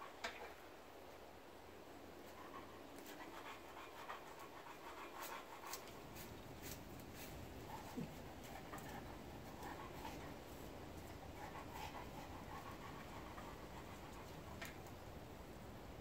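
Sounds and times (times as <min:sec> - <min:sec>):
dog panting: 0:02.2 - 0:15.0.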